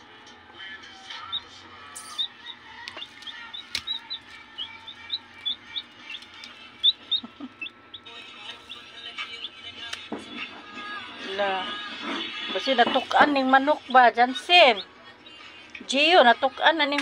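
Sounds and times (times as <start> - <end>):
chick peeping: 0.9 - 9.6.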